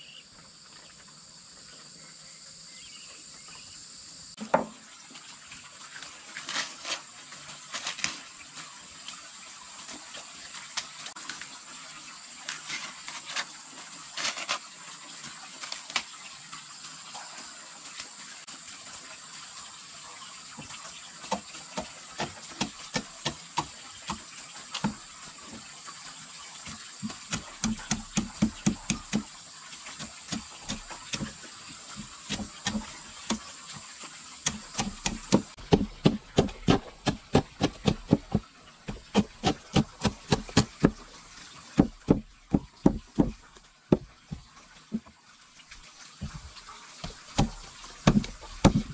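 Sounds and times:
insects droning: 0:00.0 - 0:04.4, 0:15.8 - 0:45.2.

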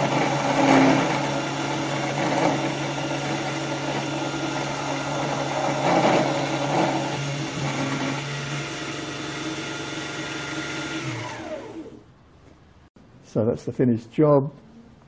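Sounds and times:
end mill cutting metal: 0:00.0 - 0:12.0
motor whine: 0:00.0 - 0:12.0.

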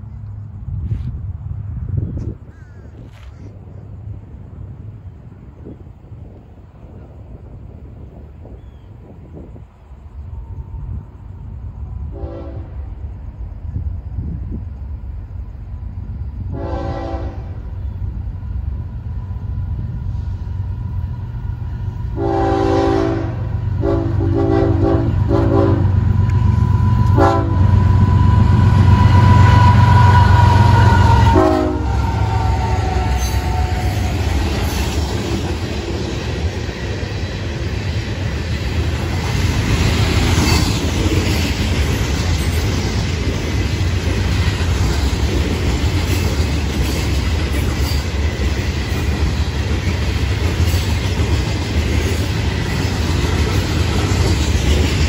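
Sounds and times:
train horn blasts: 0:12.0 - 0:13.1, 0:16.5 - 0:17.9, 0:22.1 - 0:34.6
train wheels clickety-clack on rails: 0:18.4 - 0:55.0.

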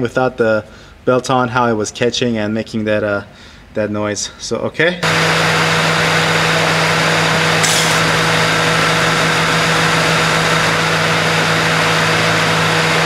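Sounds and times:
ac compressor spinning: 0:05.0 - 0:13.0
car engine idling: 0:05.0 - 0:13.0.

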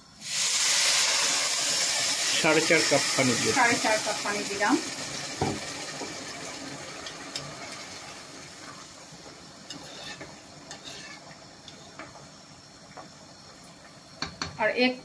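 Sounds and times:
hot liquid hissing: 0:00.0 - 0:15.0
metal spoon scraping a pot: 0:09.7 - 0:11.8.

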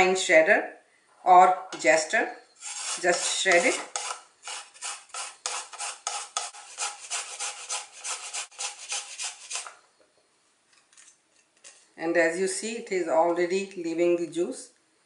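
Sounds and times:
ginger grated on metal grater: 0:02.6 - 0:09.7.

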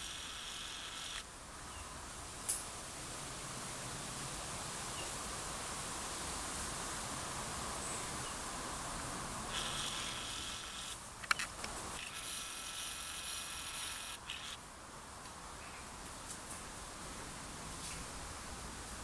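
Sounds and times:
camera zoom motor whirring: 0:00.0 - 0:01.2, 0:09.5 - 0:11.0, 0:12.0 - 0:14.6
steady outdoor hiss: 0:00.0 - 0:19.0.

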